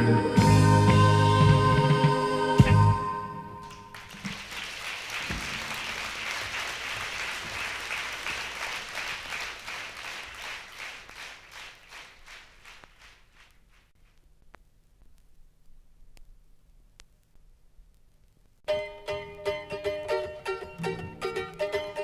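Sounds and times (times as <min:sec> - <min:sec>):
audience applauding: 0:03.6 - 0:13.9.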